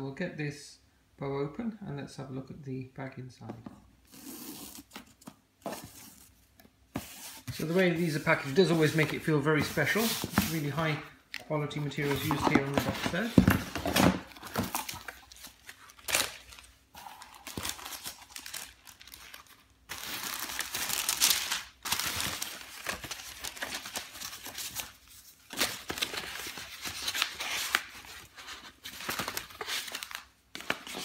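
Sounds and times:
paper rustling and crinkling: 0:07.0 - 0:11.0, 0:11.8 - 0:16.8, 0:17.4 - 0:31.0.

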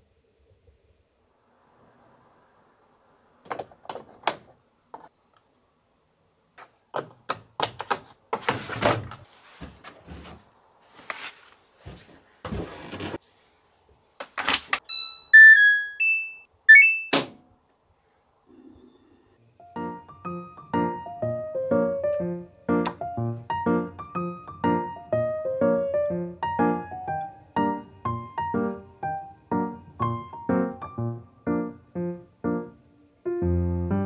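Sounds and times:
short electronic beeps: 0:14.9 - 0:17.2.

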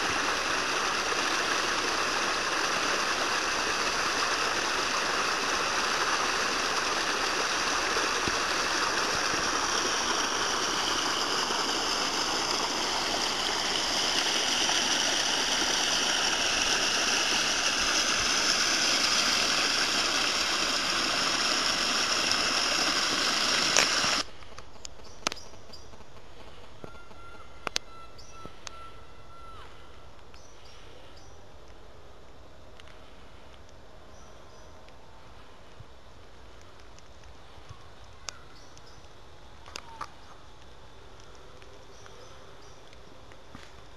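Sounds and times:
stream water rushing: 0:00.0 - 0:24.3.

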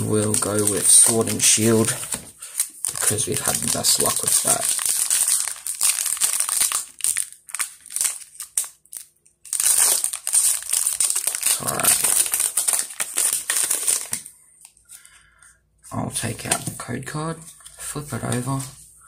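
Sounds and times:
foil wrapper crinkling: 0:00.0 - 0:14.3.

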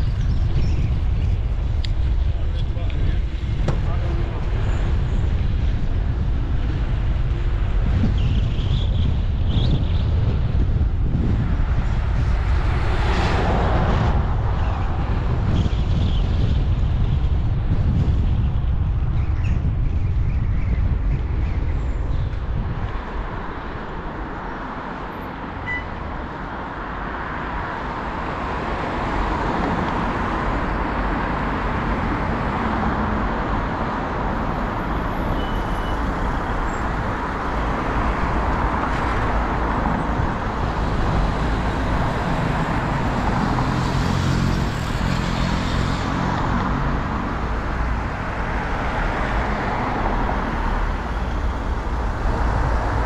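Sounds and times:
wind buffeting microphone: 0:00.0 - 0:25.1, 0:36.0 - 0:53.0.

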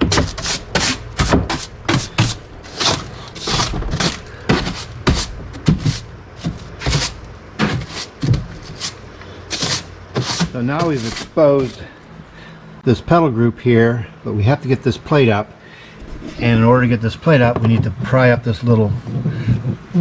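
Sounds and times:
brush scrubbing floor: 0:00.0 - 0:12.0.

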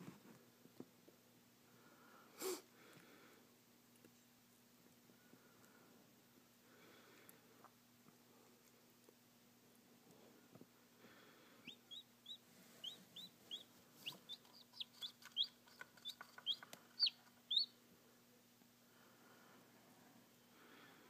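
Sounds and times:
chick peeping: 0:11.6 - 0:17.8.

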